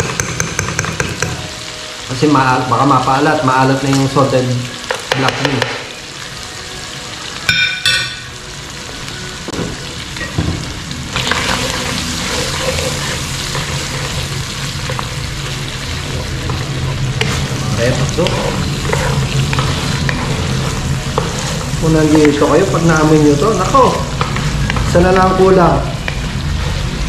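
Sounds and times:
meat sizzling in a frying pan: 0:00.0 - 0:27.0
wooden spatula scraping a pan: 0:11.2 - 0:25.2.

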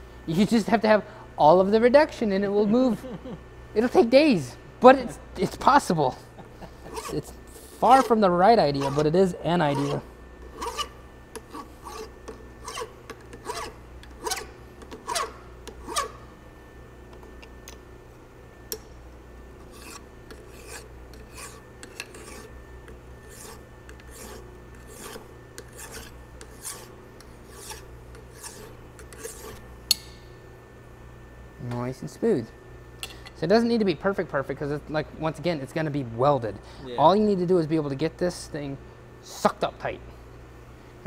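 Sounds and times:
hand file rasping on metal: 0:06.8 - 0:16.2, 0:19.6 - 0:22.6, 0:23.2 - 0:29.6.

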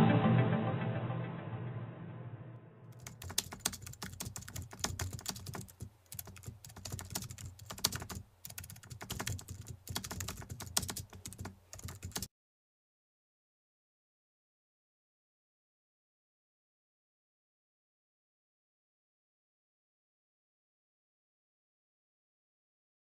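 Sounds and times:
music: 0:00.0 - 0:02.9
keyboard typing clicks: 0:02.9 - 0:12.3.

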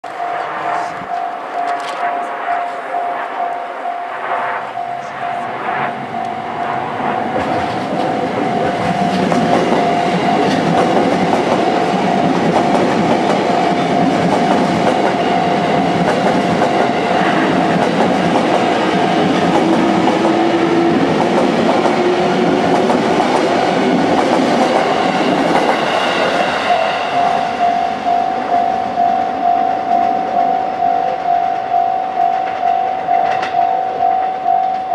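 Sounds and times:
level-crossing bell ringing: 0:00.0 - 0:16.1, 0:24.6 - 0:34.9
train wheels clattering on rail: 0:06.2 - 0:29.0, 0:31.1 - 0:34.9.

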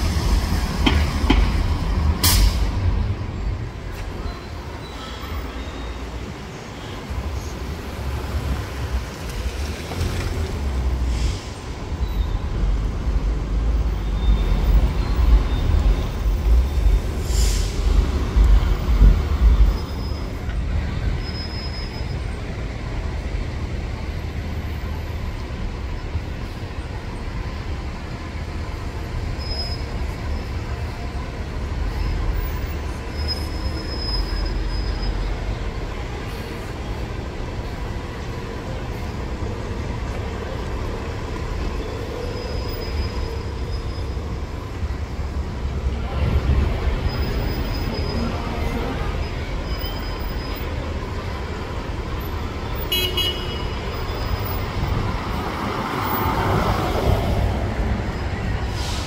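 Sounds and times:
bus engine pulling away: 0:00.0 - 0:52.8, 0:53.8 - 0:59.0
street traffic rumble: 0:00.0 - 0:59.0
air brake hiss: 0:02.2 - 0:02.8, 0:11.0 - 0:11.7, 0:17.2 - 0:18.0, 0:58.6 - 0:59.0.

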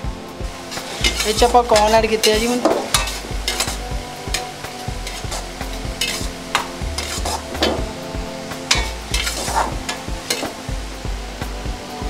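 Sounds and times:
ladle scraping and clinking on wok: 0:00.7 - 0:07.8, 0:08.7 - 0:10.7
ladle stirring noodles in broth: 0:00.7 - 0:07.8, 0:08.7 - 0:10.7.

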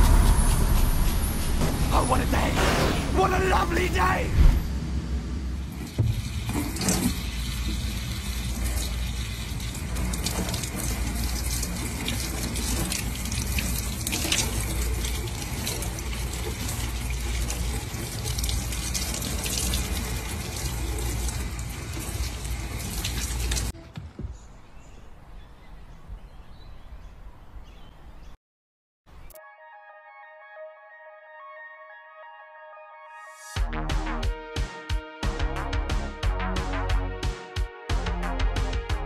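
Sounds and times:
water running from a tap: 0:05.6 - 0:23.7
water splashing into a sink: 0:05.7 - 0:23.7.

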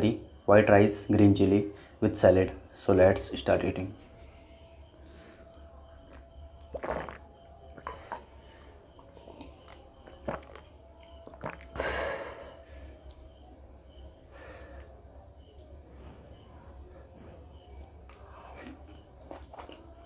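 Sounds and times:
person gulping a drink: 0:06.1 - 0:07.2, 0:09.4 - 0:12.0.

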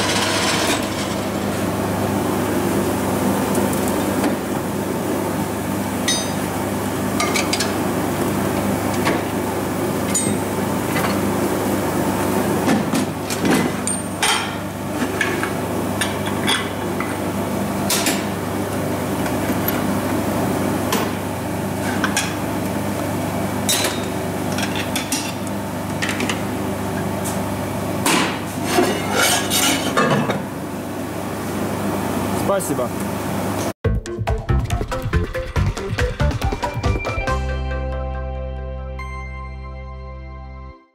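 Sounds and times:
steady machine hum: 0:00.0 - 0:28.5.

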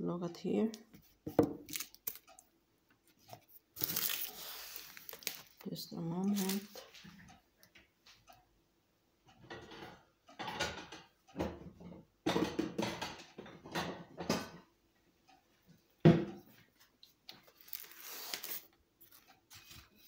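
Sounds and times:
paper wrapper crinkling: 0:01.6 - 0:02.4, 0:03.3 - 0:07.0, 0:17.4 - 0:19.8.

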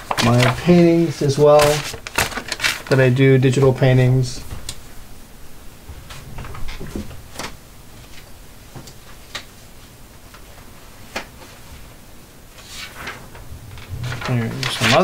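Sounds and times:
paper rustling: 0:00.0 - 0:03.7, 0:12.5 - 0:15.0.

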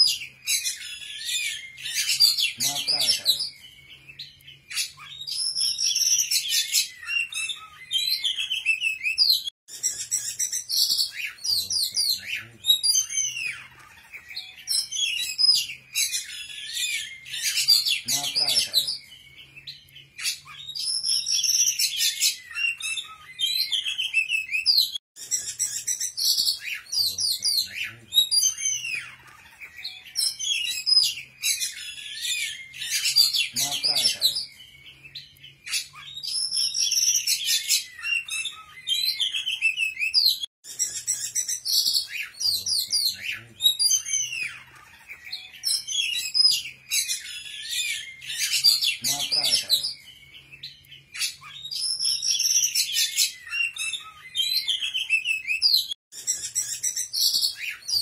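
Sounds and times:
songbird singing: 0:41.0 - 0:58.0.

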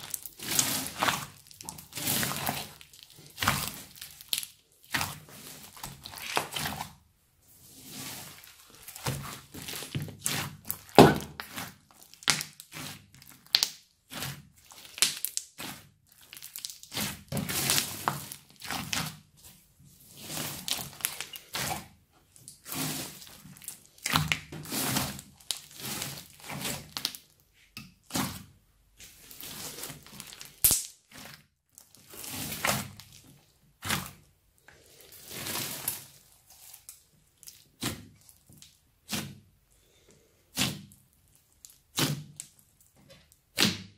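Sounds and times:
slime squelching and crackling: 0:00.0 - 0:39.7, 0:40.5 - 0:43.9
slime clicks and pops: 0:30.6 - 0:30.9.

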